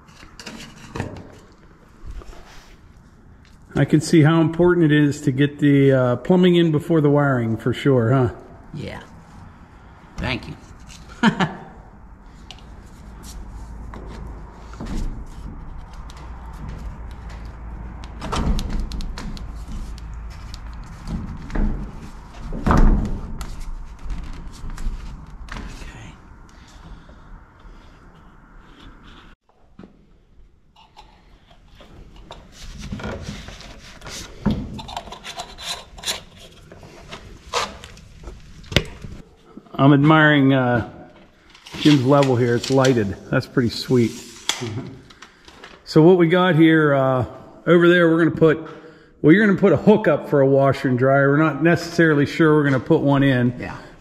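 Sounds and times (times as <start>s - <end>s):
scraping and rubbing on plastic pipe: 18.9s - 25.8s, 30.8s - 39.2s.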